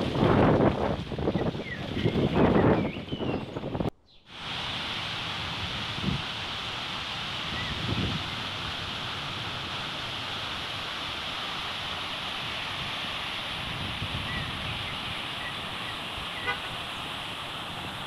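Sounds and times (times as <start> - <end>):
wind buffeting microphone: 0.0 - 18.0
water falling into a pool: 4.3 - 18.0.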